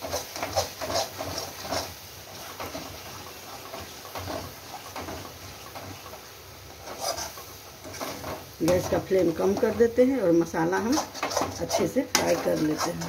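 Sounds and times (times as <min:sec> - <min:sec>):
paste frying in oil: 0:00.0 - 0:13.0
spatula scraping pan: 0:00.0 - 0:13.0.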